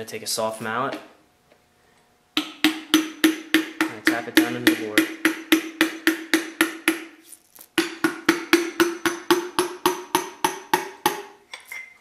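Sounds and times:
mallet tapping metal piston: 2.4 - 7.1, 7.8 - 11.4.

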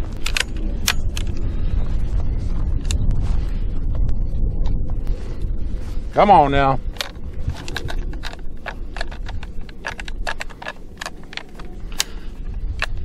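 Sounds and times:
shotgun action clicking and rattling: 0.1 - 1.4, 6.9 - 13.0.

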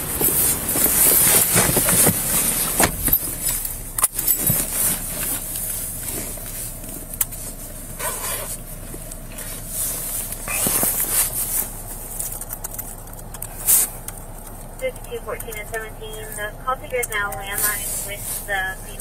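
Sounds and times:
handling clicks and knocks: 0.0 - 5.7, 10.2 - 15.6.

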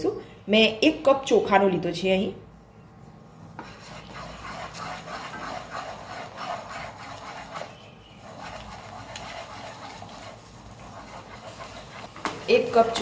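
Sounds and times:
rolling pin scraping pan: 3.6 - 13.0.

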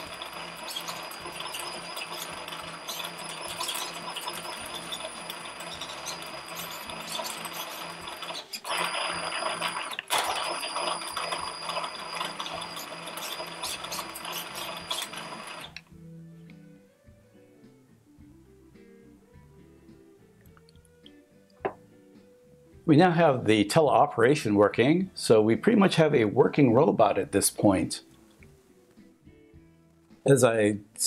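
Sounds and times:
electric motor whine and gear noise: 0.0 - 16.0.

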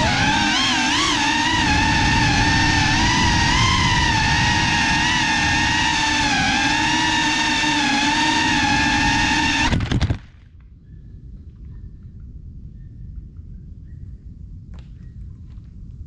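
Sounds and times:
drone motors whining: 0.0 - 9.9.

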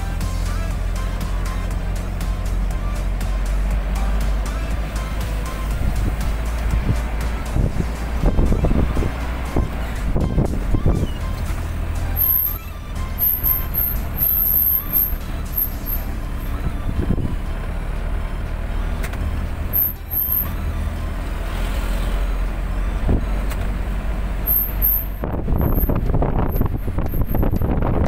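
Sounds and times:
vehicle engine and road rumble: 0.0 - 28.0
wind buffeting microphone: 5.7 - 11.4, 16.5 - 17.4, 25.1 - 28.0.

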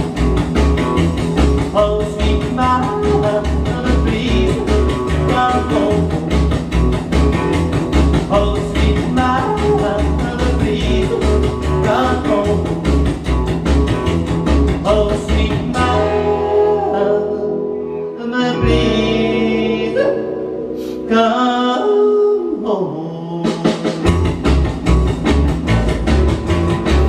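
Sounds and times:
rock and roll band playing: 0.0 - 21.6, 23.3 - 27.0
guitar: 0.0 - 27.0
person singing: 1.4 - 6.6, 8.1 - 13.1, 14.8 - 24.0.

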